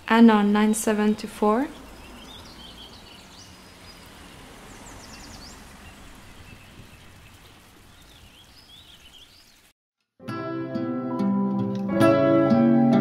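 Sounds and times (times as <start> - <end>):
birds chirping: 0.0 - 9.7
wind: 0.0 - 9.7.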